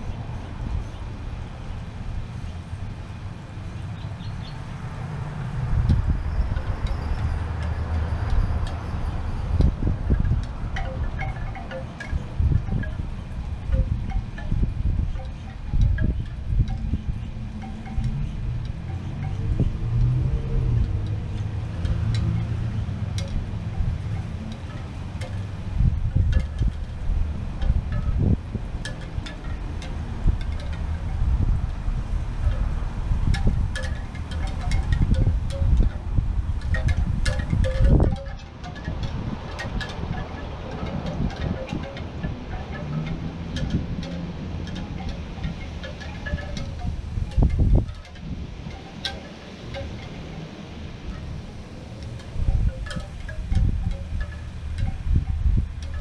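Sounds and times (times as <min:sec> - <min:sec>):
wind buffeting microphone: 0:00.0 - 0:56.0
light high tinkles: 0:29.2 - 0:50.4, 0:51.1 - 0:56.0.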